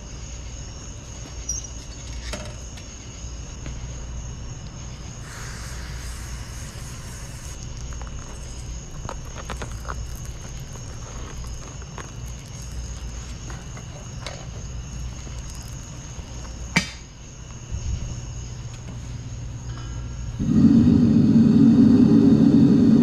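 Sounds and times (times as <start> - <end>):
furnace burner roaring: 3.4 - 23.0
molten metal crackling: 4.9 - 17.3.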